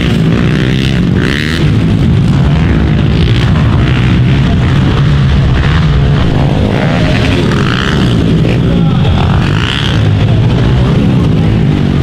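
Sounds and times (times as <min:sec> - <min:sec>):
pit bike engines revving: 0:00.0 - 0:12.0.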